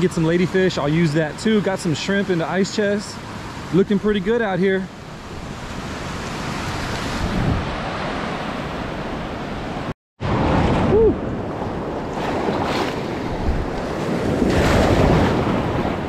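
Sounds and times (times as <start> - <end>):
ocean surf breaking on beach: 0.0 - 16.0
wind buffeting microphone: 5.1 - 16.0.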